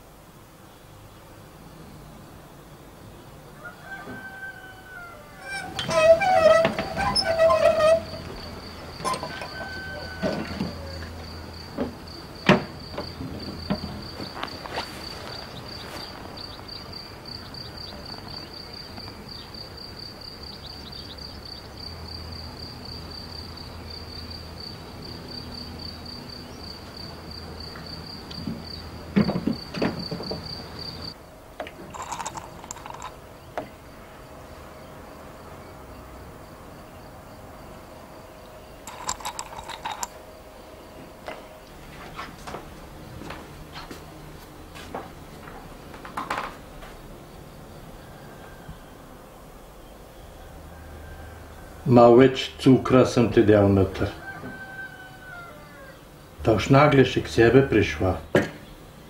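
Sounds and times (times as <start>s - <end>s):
crickets chirping: 0.0s - 59.0s
wheelbarrow knocks: 5.4s - 11.0s, 11.8s - 16.1s, 28.4s - 30.6s
china clinking: 9.0s - 10.1s, 31.9s - 33.2s, 38.9s - 40.2s.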